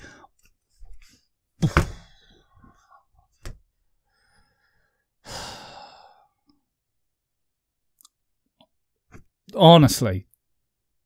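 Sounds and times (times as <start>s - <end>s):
man sighing: 5.2s - 6.4s.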